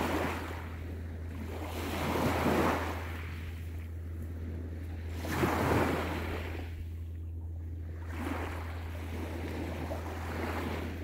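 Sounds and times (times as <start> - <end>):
small waves washing onto beach: 0.0 - 7.1, 7.8 - 11.0.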